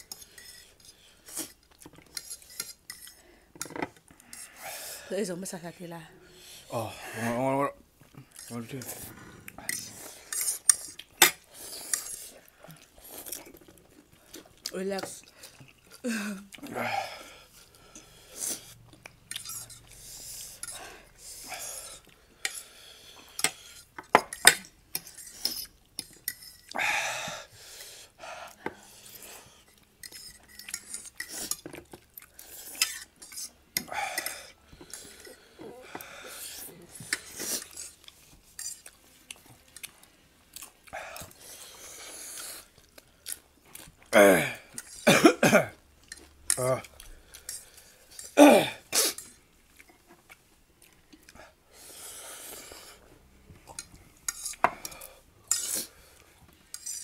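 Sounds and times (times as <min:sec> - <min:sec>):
noodles slurped and chewed: 0:08.0 - 0:24.0, 0:27.5 - 0:45.0, 0:45.8 - 0:57.0.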